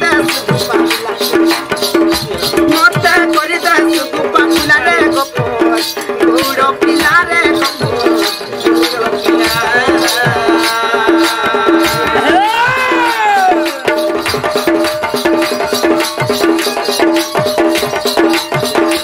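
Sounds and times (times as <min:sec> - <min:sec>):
men singing into microphones: 0:00.0 - 0:14.6
steady percussion beat: 0:00.0 - 0:19.0.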